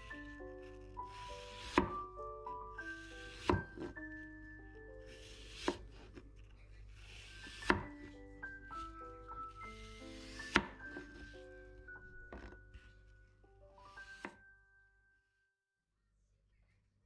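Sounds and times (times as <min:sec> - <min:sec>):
knife slicing apple: 0:00.0 - 0:02.2, 0:02.8 - 0:04.1, 0:05.1 - 0:11.4
light melodic background music: 0:00.0 - 0:15.5.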